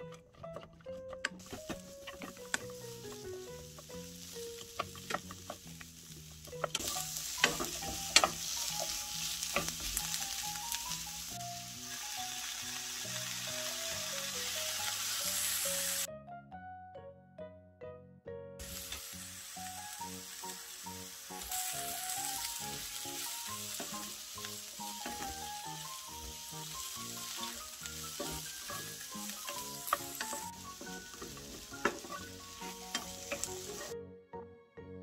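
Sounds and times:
wooden spatula clicking on pan: 0:00.0 - 0:03.9, 0:04.6 - 0:05.9, 0:06.5 - 0:10.2, 0:26.8 - 0:33.9
light background music: 0:00.0 - 0:35.0
vegetables sizzling in a pan: 0:01.4 - 0:16.1, 0:18.6 - 0:34.0.

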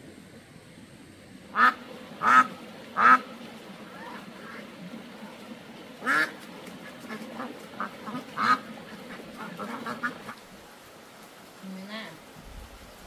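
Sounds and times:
ducks quacking: 0:01.5 - 0:05.3, 0:06.0 - 0:10.4.

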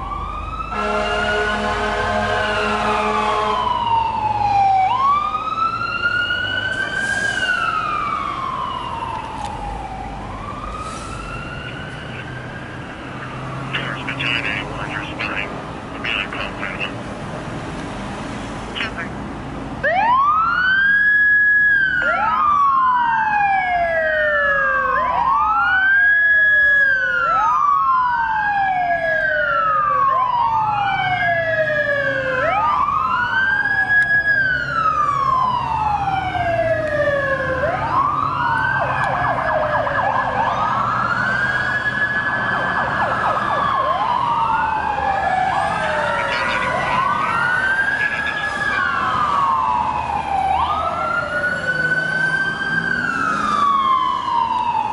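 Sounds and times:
second siren wailing: 0:00.0 - 0:15.6, 0:19.8 - 0:54.9
fire engine siren wailing: 0:00.0 - 0:17.1, 0:19.8 - 0:54.9.

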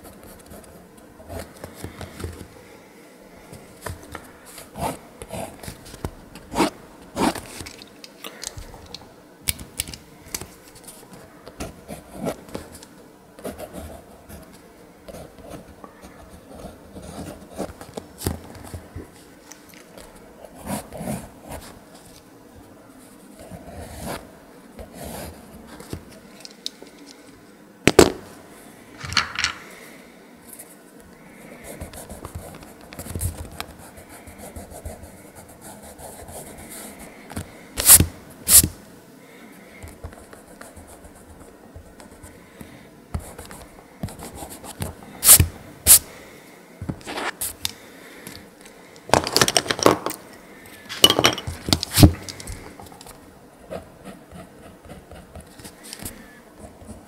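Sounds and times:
handling knocks and clatters: 0:50.9 - 0:52.7
pencil scratching on paper: 0:53.7 - 0:55.8.

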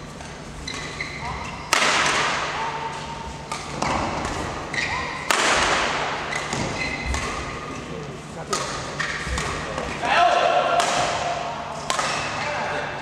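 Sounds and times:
shoes squeaking on floor: 0:00.6 - 0:01.7, 0:03.7 - 0:05.3, 0:06.2 - 0:08.0
racket hitting shuttlecock: 0:01.7 - 0:07.7, 0:08.5 - 0:10.0, 0:10.6 - 0:12.6.

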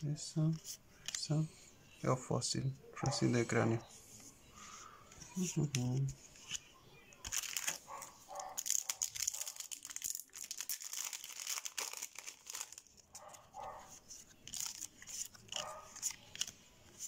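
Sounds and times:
foil wrapper crinkling: 0:07.2 - 0:13.4, 0:14.4 - 0:16.6.

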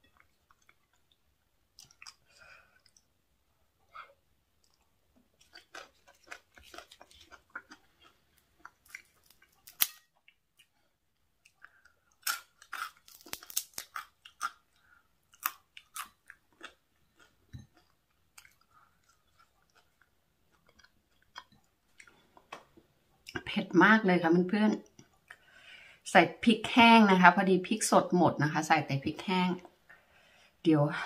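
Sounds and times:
person chewing crunchy food: 0:00.0 - 0:03.2, 0:03.9 - 0:23.4.

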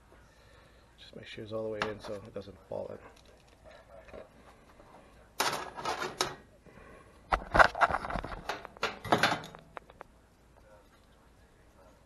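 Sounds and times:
metal knocks and clatter: 0:07.6 - 0:09.6.

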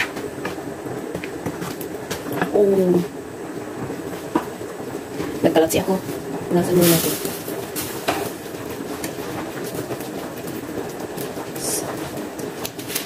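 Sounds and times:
sauce bubbling in a wok: 0:07.3 - 0:13.0.

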